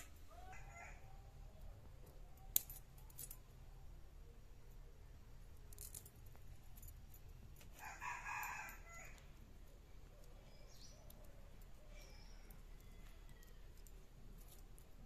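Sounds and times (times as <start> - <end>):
rooster crowing: 0.3 - 1.2, 7.8 - 9.2, 12.0 - 13.8.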